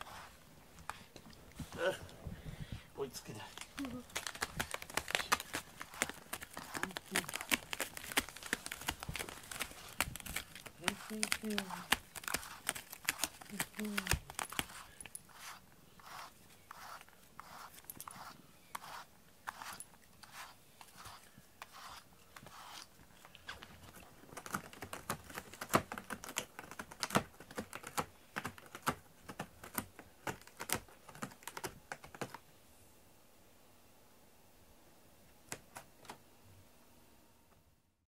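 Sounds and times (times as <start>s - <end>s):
cat scratching cardboard: 0.0s - 1.1s, 3.3s - 32.4s.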